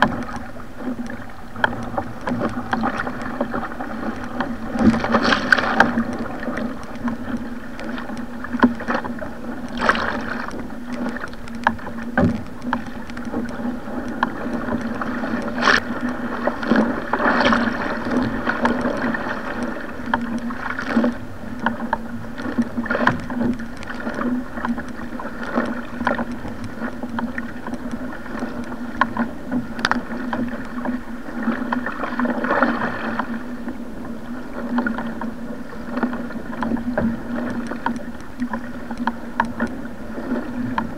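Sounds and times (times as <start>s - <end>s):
sharp water splashes: 0.0s - 21.2s
water rushing along a hull: 0.0s - 40.9s.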